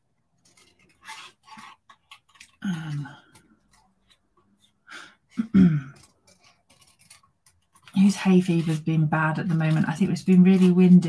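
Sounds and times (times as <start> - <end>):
scissors snipping cardstock: 6.0 - 11.0.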